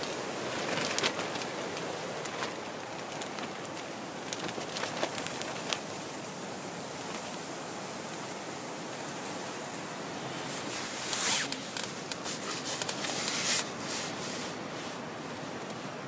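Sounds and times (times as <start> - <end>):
steady background hiss: 0.0 - 16.0
zipper being pulled: 10.5 - 13.7.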